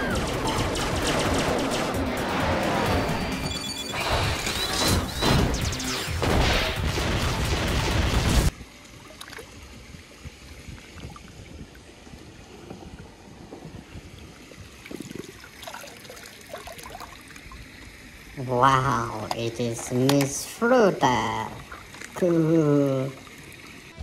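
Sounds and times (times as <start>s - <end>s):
film soundtrack music and noise: 0.0s - 8.5s.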